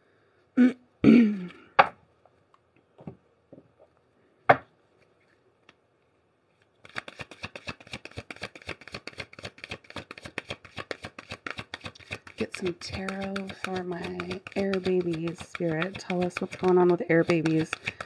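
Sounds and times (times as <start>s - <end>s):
cards being shuffled: 6.7s - 18.0s
sharp taps and clicks: 6.8s - 18.0s.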